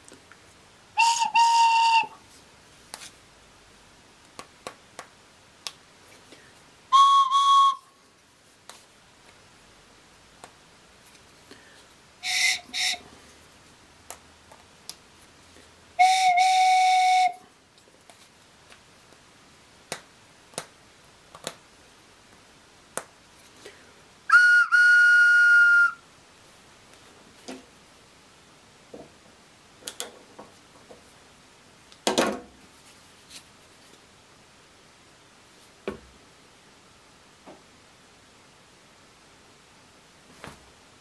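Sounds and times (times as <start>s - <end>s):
wooden whistle toots: 1.0s - 2.2s, 6.9s - 8.0s, 12.2s - 13.1s, 16.0s - 17.4s, 24.3s - 26.0s.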